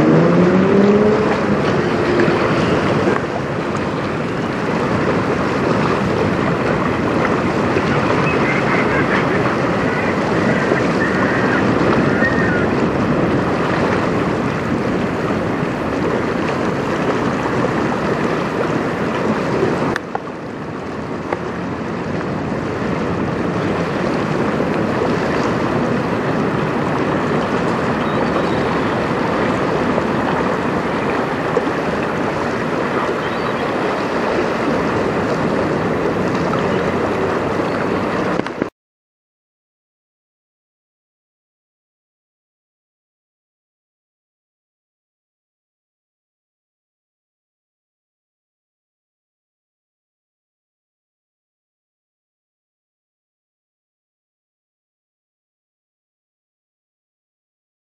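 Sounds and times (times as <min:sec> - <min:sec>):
choppy river water washing: 0:00.0 - 0:38.7
wind on microphone: 0:00.0 - 0:38.7.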